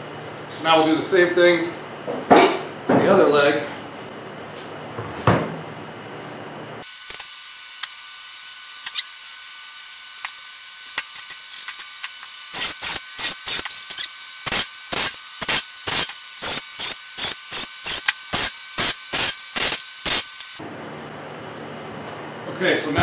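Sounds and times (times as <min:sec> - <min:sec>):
cordless drill boring into wood: 0:06.8 - 0:20.6.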